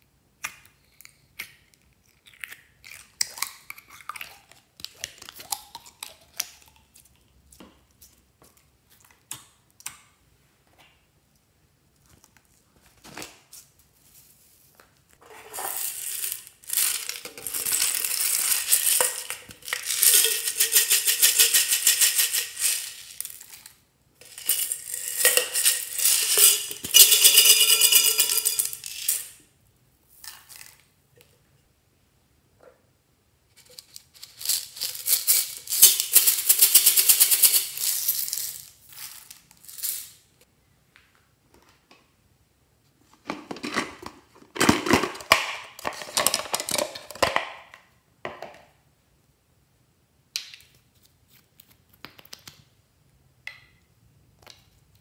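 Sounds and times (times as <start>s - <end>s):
plastic beads rattling in a can: 15.2s - 29.4s, 33.6s - 40.2s.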